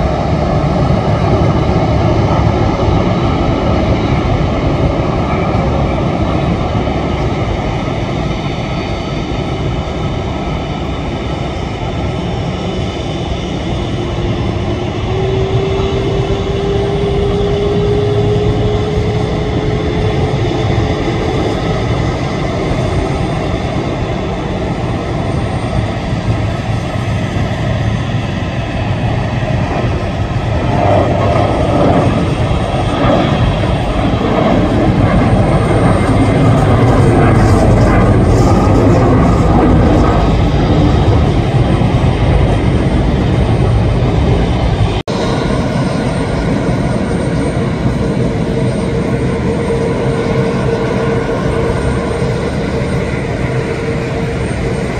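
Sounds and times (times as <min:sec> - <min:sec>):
jet engines running: 0:00.0 - 0:54.9.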